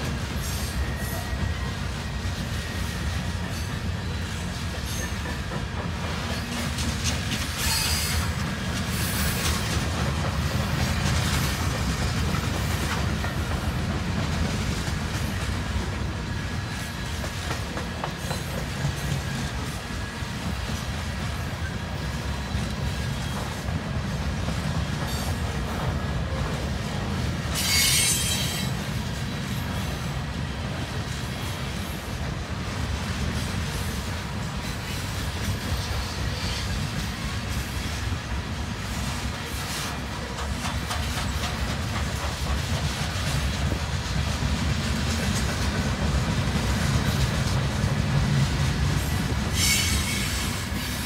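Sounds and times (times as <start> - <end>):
clickety-clack over rail joints: 0.0 - 51.0
train wheels rumbling on rail: 0.0 - 51.0.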